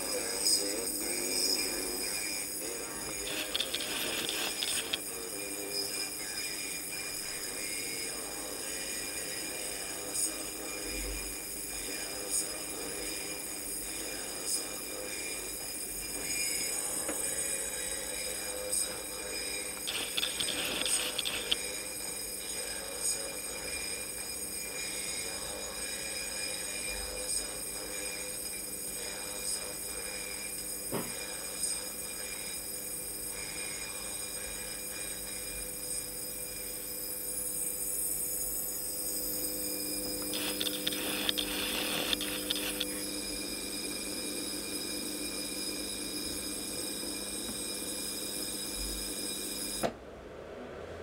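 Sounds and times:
plasma speaker hiss and whine: 0.0s - 49.9s
plasma speaker buzzing: 2.7s - 5.3s, 19.2s - 21.7s, 39.3s - 49.9s.

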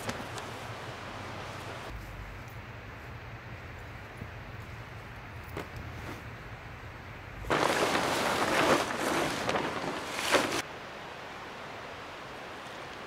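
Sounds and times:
plastic tarp crinkling and rustling: 7.5s - 10.6s.

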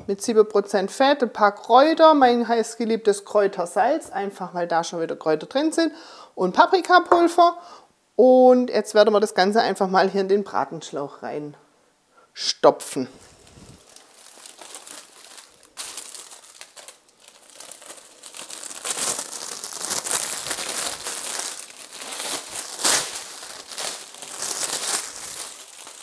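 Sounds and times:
plastic film crinkling: 13.2s - 26.0s.

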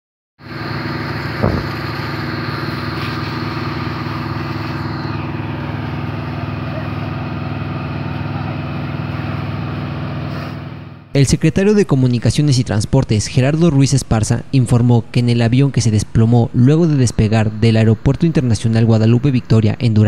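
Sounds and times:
engine droning: 0.4s - 20.0s.

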